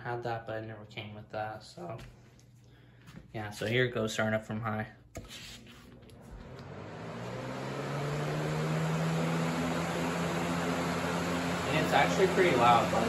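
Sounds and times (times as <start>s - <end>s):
box fan blowing air: 5.9s - 13.0s.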